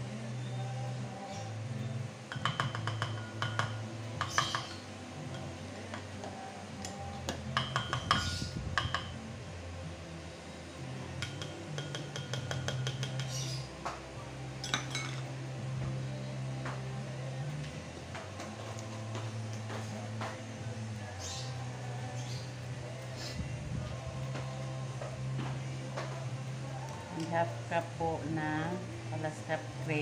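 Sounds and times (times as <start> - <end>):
utensils clinking on ceramic bowls: 14.6 - 15.3.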